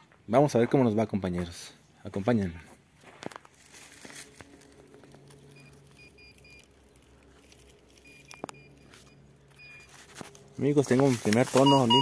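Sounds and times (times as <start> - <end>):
metal detector high beeps: 11.6 - 12.0
metal detector low tone: 11.6 - 12.0.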